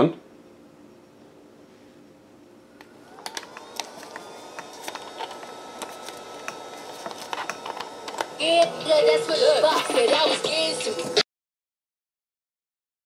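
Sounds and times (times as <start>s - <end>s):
steady radio tones: 3.0s - 11.2s
plug handling clicks: 3.2s - 8.4s
radio hiss: 6.2s - 11.2s
song with singing on radio: 8.4s - 11.2s.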